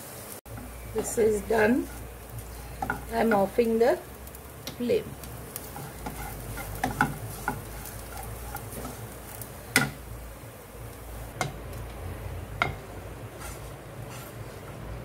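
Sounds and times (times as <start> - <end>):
spatula scraping frying pan: 0.6 - 10.1, 12.6 - 14.9
spatula knocking against pan: 6.8 - 7.7, 9.8 - 10.0, 12.6 - 12.8.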